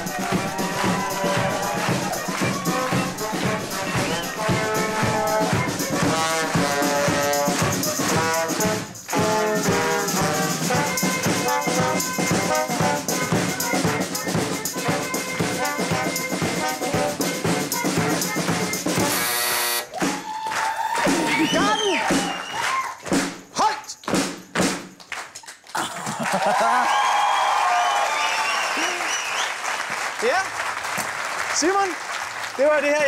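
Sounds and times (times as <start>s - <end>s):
bass drum: 0.0s - 19.3s
marching band playing a march: 0.0s - 20.3s, 21.0s - 23.4s.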